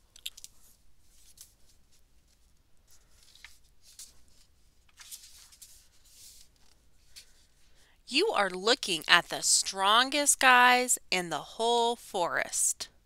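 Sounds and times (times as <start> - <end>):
book pages turning: 0.2 - 7.5.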